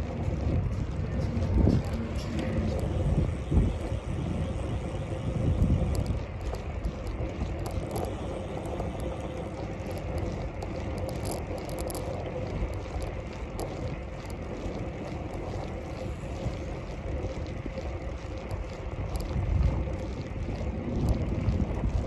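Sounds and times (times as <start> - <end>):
bicycle tyres and wind rumble: 0.0 - 22.0
bike clicks and rattles: 0.0 - 22.0.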